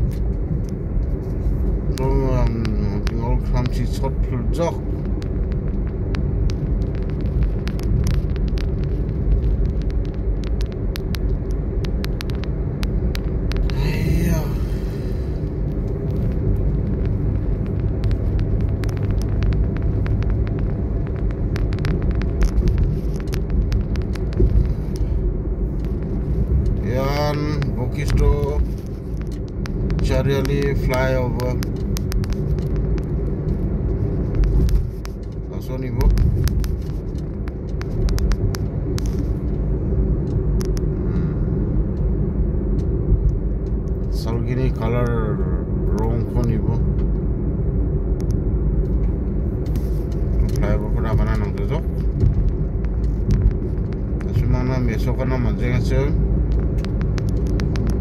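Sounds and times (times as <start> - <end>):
car driving rumble from inside: 0.0 - 58.0
small sharp ticks: 0.1 - 13.8, 14.4 - 42.1, 56.4 - 58.0.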